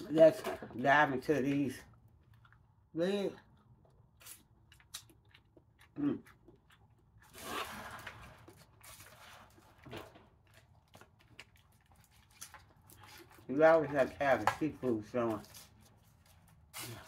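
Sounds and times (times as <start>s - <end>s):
chewing: 1.8s - 7.4s, 10.4s - 13.5s.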